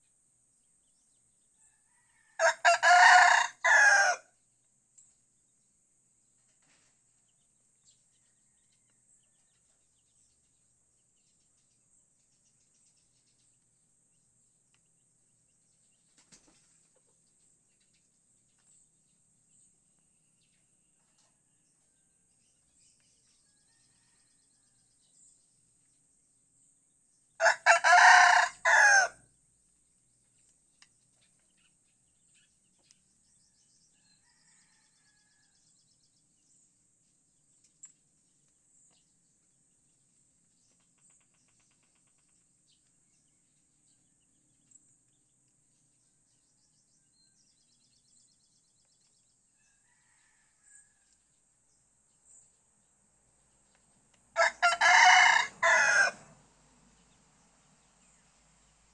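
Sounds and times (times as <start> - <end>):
rooster crowing: 1.6 - 4.3, 27.4 - 29.2, 34.1 - 35.5, 49.6 - 51.1, 54.3 - 56.4.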